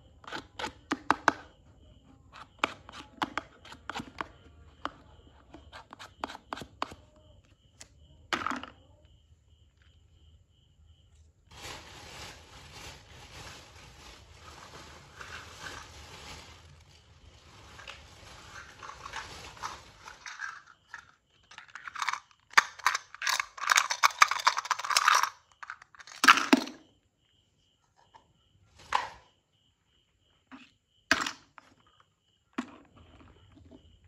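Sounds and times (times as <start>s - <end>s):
plastic pieces rattling in toy pan: 17.7s - 26.8s.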